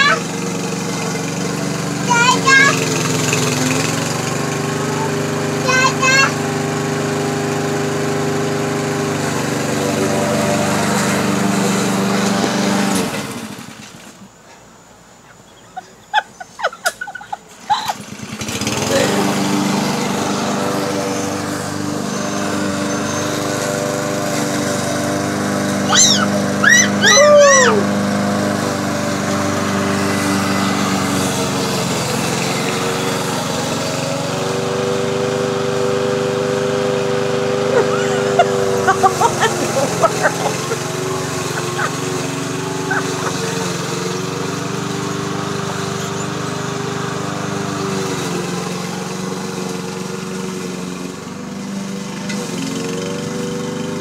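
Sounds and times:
lawn mower engine running: 0:00.0 - 0:54.0.

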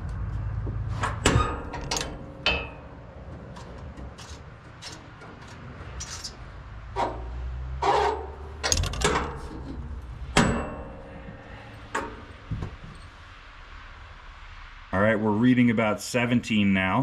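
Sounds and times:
metal knocks and clicks: 0:00.1 - 0:13.2
sharp metallic clank: 0:01.0 - 0:03.0, 0:07.8 - 0:13.1.

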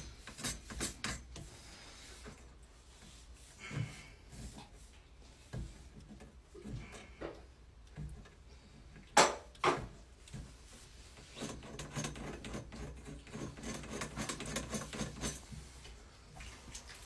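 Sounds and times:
razor blade scraping metal pipe: 0:00.0 - 0:01.5, 0:11.2 - 0:15.5.

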